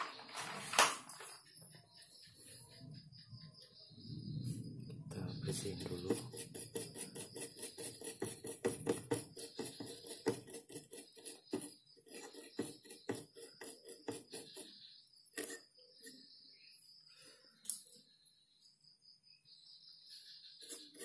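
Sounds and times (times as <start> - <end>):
brush scrubbing circuit board: 5.5 - 16.3, 20.6 - 21.0.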